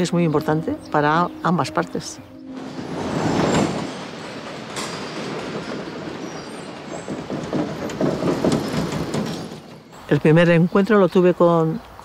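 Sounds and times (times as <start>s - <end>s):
rattling and clattering: 2.6s - 10.0s.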